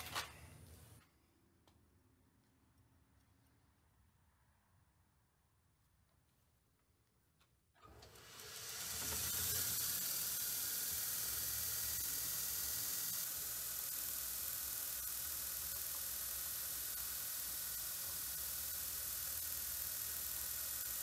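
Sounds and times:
motor spinning up: 7.8 - 21.0
belt grinder running: 7.9 - 21.0.

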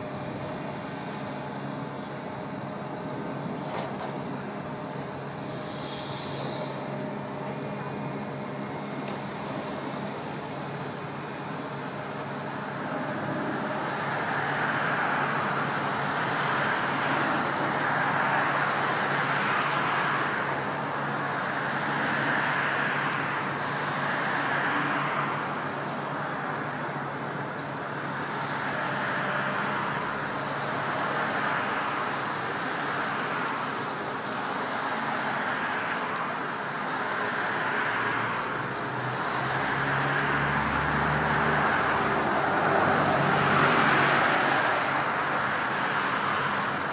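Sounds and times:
low engine drone: 0.0 - 17.7
cars passing: 34.8 - 46.9.

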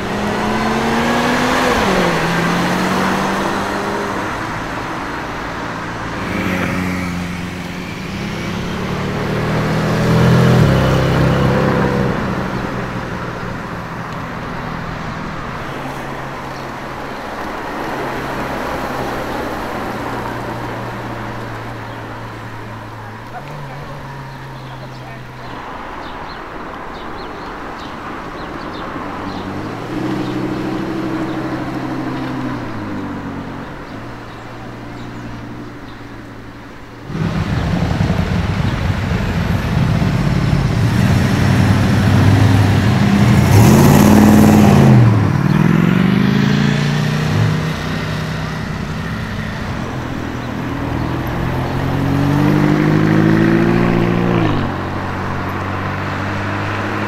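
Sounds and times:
sports cars accelerating past: 0.0 - 26.2, 37.0 - 57.0.

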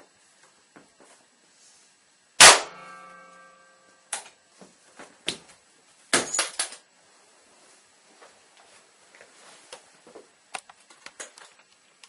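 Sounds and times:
ringing metallic clang: 2.4 - 4.0.

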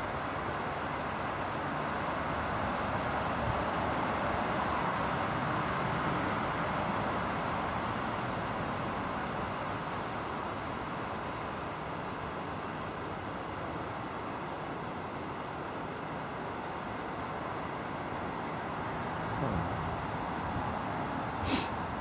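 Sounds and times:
outdoor rushing noise: 19.2 - 22.0.

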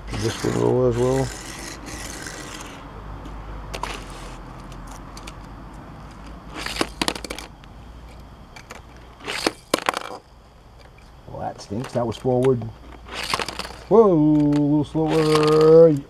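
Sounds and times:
toy car clattering on plastic track: 3.7 - 5.5, 6.1 - 7.5, 8.6 - 10.2, 11.8 - 16.0.

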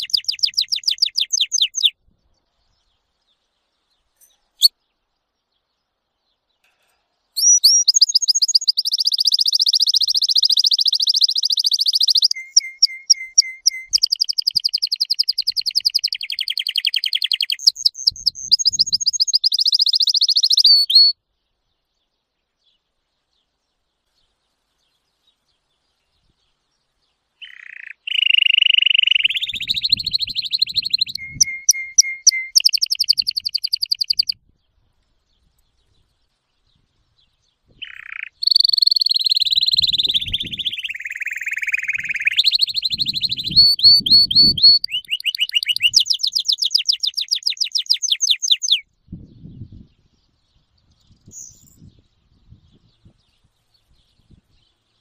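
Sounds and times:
canary singing trills: 0.0 - 2.0, 7.3 - 21.2, 27.4 - 34.4, 37.7 - 48.9.

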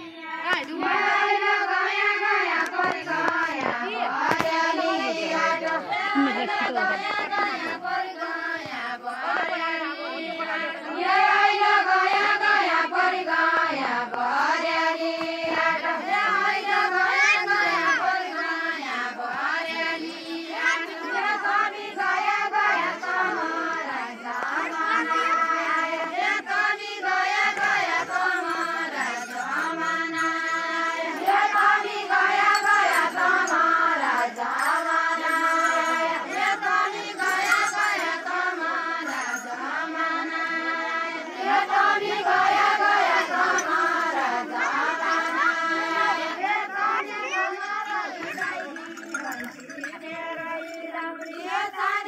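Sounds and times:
women singing unaccompanied: 0.0 - 52.0.

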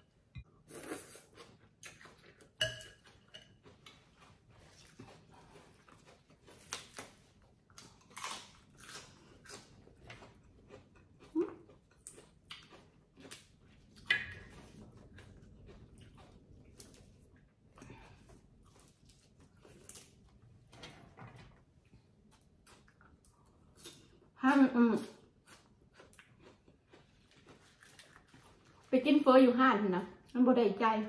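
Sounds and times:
slurping and chewing: 0.6 - 20.2, 25.1 - 28.9.

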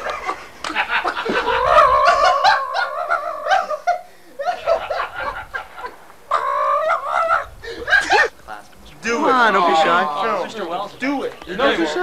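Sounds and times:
man laughing: 0.0 - 8.4.

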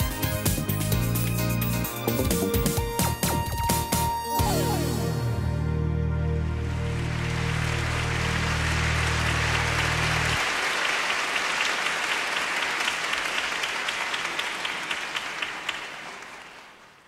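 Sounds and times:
low music notes: 0.0 - 10.4
audience applauding: 6.6 - 17.0.

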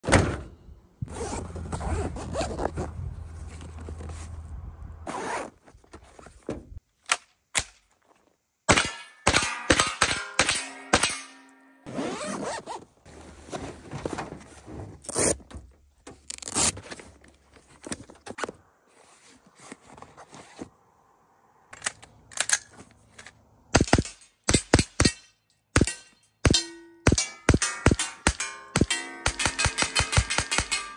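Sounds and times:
zippers pulled: 1.1 - 3.0, 5.1 - 5.6, 11.9 - 12.9
fabric scraping: 1.1 - 4.4
thunks of gear being moved: 1.1 - 4.5, 5.1 - 6.8, 11.9 - 20.8.

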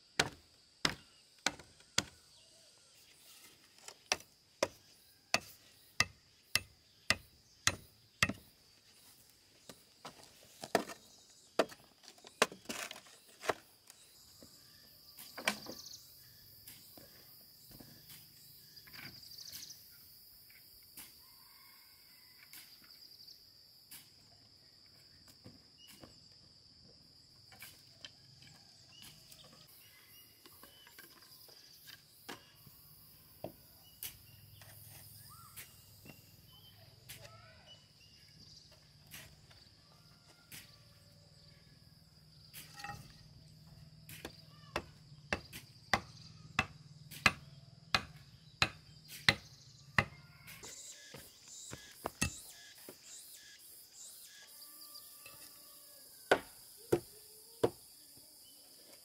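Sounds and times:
hand tool knocking: 5.4 - 8.4.

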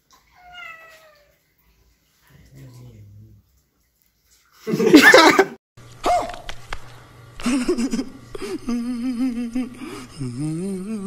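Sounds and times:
man laughing: 4.6 - 5.6, 7.4 - 11.0.

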